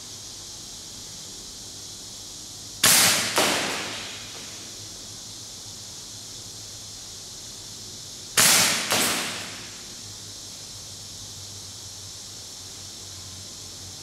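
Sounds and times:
airsoft rifle shots echoing: 0:02.8 - 0:04.6, 0:08.4 - 0:09.9.

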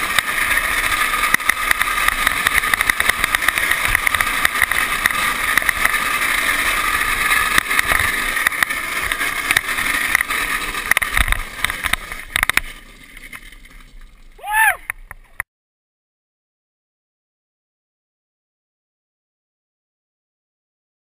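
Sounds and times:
wheel and wind noise: 0:00.0 - 0:15.4.

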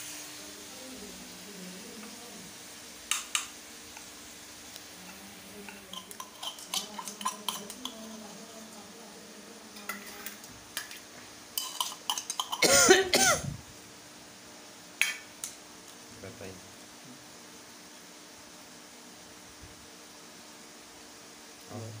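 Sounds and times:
steel tumbler and bowl clinking: 0:05.0 - 0:08.3, 0:11.5 - 0:12.8.

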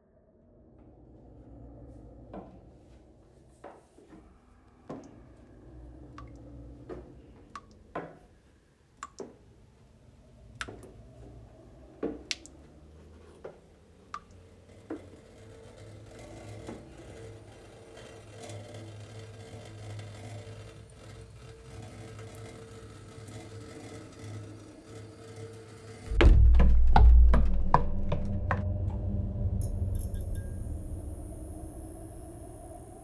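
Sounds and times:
low steady rumble: 0:00.0 - 0:07.8, 0:26.0 - 0:33.0.

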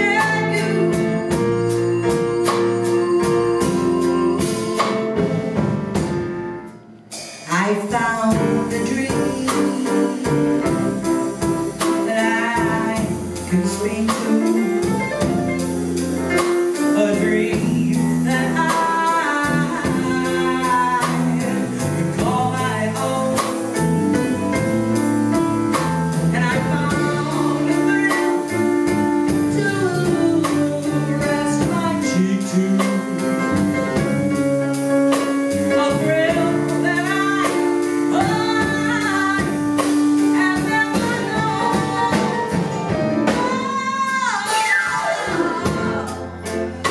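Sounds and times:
woman singing: 0:00.0 - 0:05.0, 0:07.4 - 0:15.7, 0:16.4 - 0:34.5, 0:35.2 - 0:46.9
drum kit: 0:00.0 - 0:46.9
electric bass guitar: 0:19.4 - 0:37.5.

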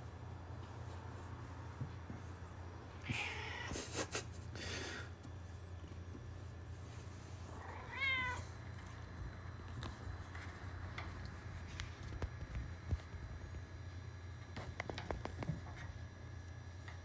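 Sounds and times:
cat meowing: 0:03.0 - 0:03.7, 0:07.6 - 0:08.5.

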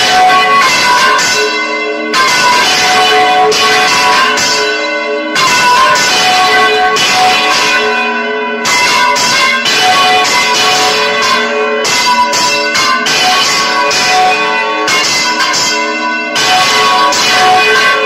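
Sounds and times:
church bells pealing: 0:00.0 - 0:18.0.

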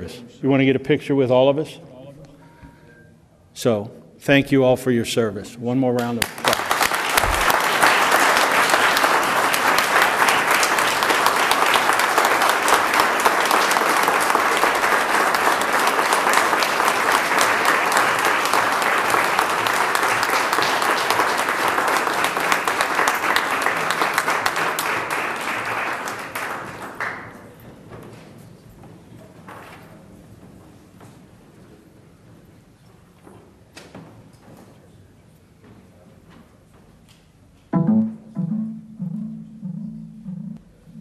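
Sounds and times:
audience applauding: 0:06.0 - 0:27.6.

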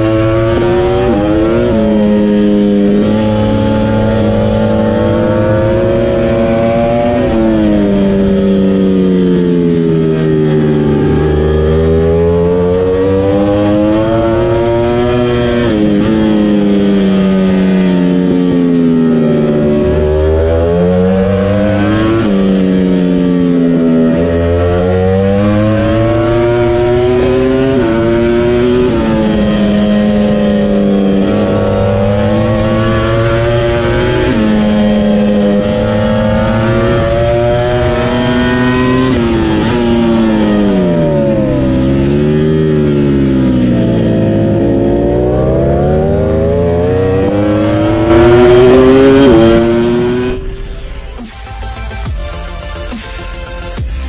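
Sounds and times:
motorcycle engine at full throttle: 0:00.0 - 0:54.0.

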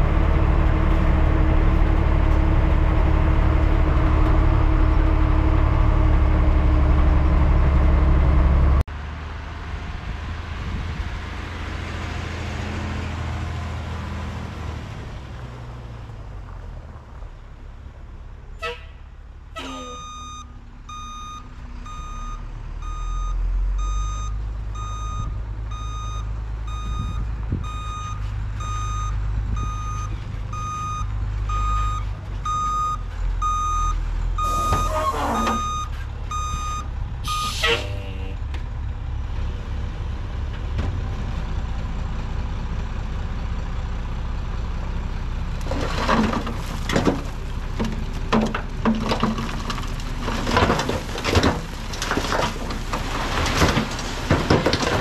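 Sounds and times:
truck backup alarm beeping: 0:19.6 - 0:38.0
dirt sliding out with rumble: 0:24.8 - 0:38.1, 0:45.4 - 0:55.0
air brake hisses: 0:37.3 - 0:38.1.

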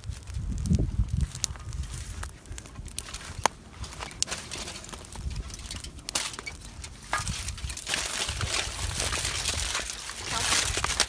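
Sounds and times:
aluminium foil crinkling: 0:00.0 - 0:11.0.

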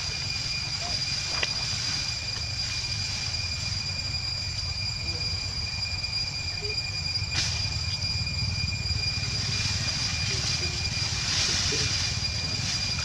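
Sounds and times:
low rumble: 0:00.0 - 0:13.0
steady high-pitched tones: 0:00.0 - 0:13.0.

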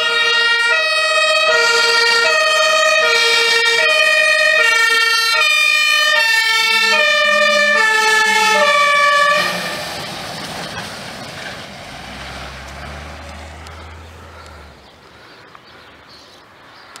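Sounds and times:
two-tone siren: 0:00.0 - 0:10.1
truck driving on wet road: 0:00.0 - 0:15.4.

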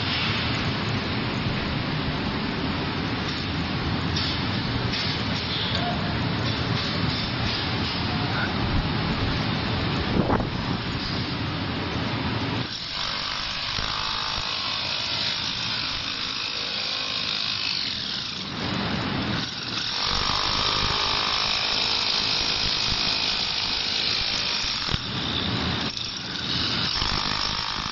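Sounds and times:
concrete breaker hammering concrete: 0:19.3 - 0:27.9.

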